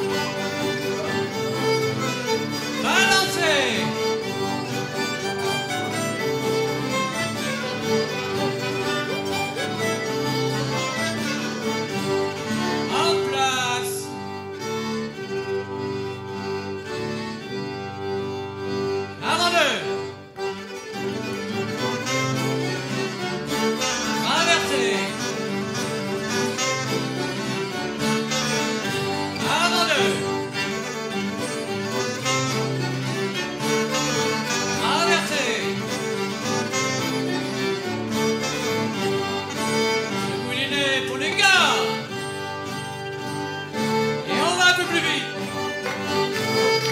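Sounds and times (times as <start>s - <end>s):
instrumental folk dance tune: 0.0s - 46.9s.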